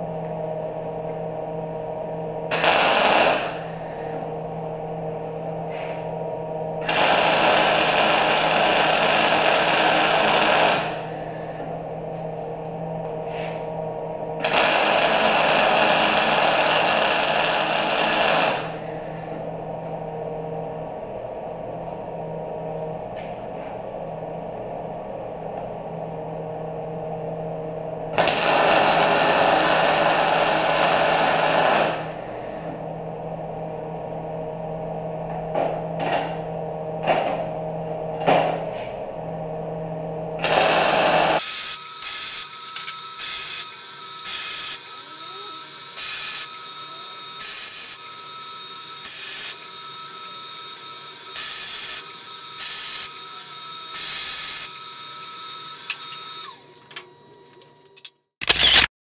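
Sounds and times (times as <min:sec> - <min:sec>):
welder crackling: 0:02.5 - 0:03.8, 0:06.8 - 0:11.3, 0:14.4 - 0:19.0, 0:28.2 - 0:32.3, 0:40.4 - 0:44.9.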